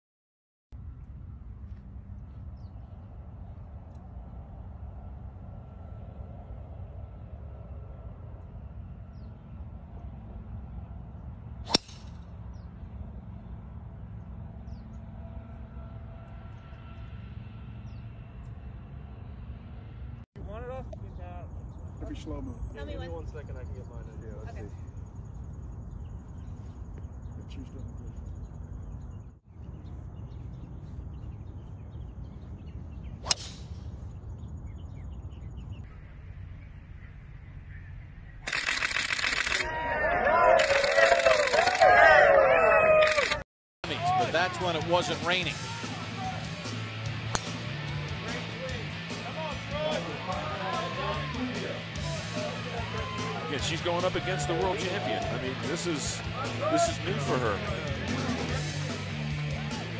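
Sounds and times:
golf club striking ball: 11.7 - 12.2, 33.2 - 33.7, 47.3 - 47.6.

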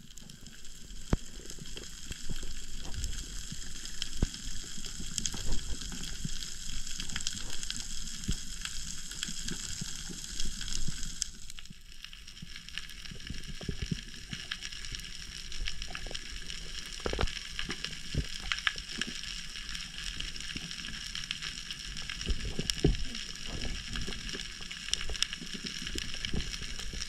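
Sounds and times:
snapping shrimp crackle: 13.2 - 27.0.

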